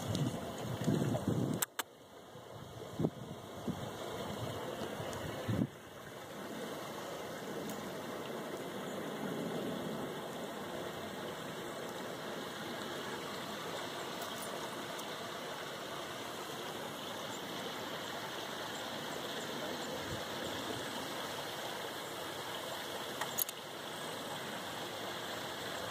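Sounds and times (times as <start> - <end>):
rushing outdoor background noise: 0.0 - 25.9
faint ticks: 23.2 - 23.6.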